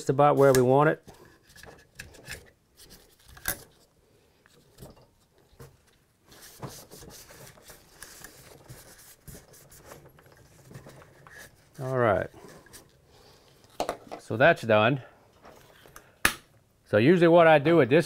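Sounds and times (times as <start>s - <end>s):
plastic tool scraping and rubbing: 4.5s - 13.0s.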